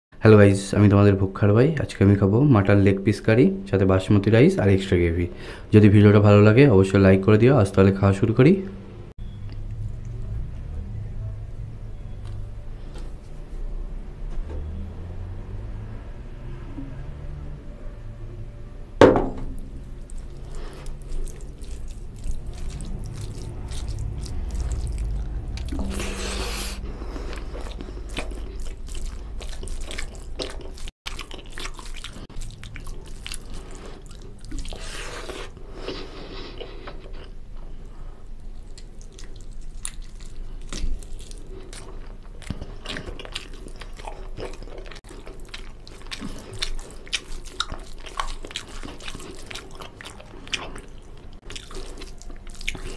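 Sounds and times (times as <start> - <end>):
sharp knock: 19.0 - 19.7
hand squishing wet rice: 19.6 - 35.3, 42.5 - 52.9.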